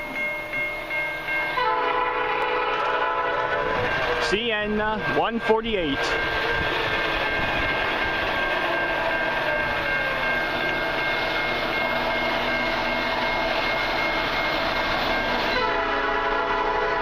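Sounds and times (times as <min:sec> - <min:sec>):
freight train rumbling: 0:00.0 - 0:17.0
locomotive air horn: 0:01.6 - 0:04.3, 0:15.5 - 0:17.0.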